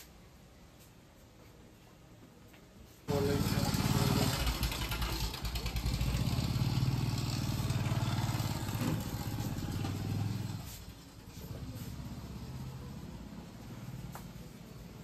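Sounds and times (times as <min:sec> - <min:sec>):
motorcycle engine running: 0:03.1 - 0:10.9.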